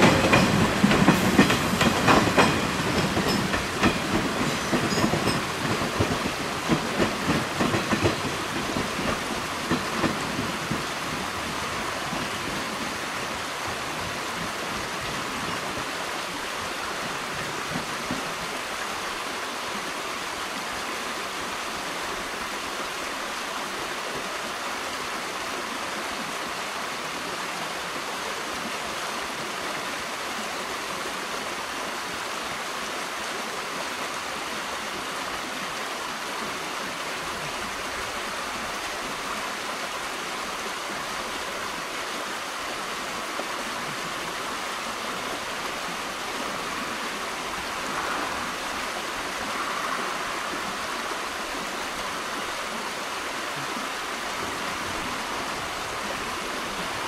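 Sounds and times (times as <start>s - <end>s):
train rumbling with knocks: 0.0s - 18.9s
steady rushing noise: 44.5s - 57.0s.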